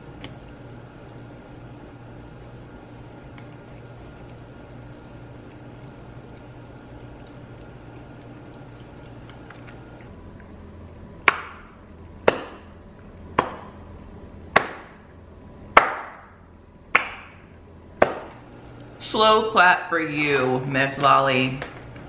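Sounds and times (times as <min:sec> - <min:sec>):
slow hand claps: 0:15.8 - 0:16.2, 0:17.0 - 0:17.4.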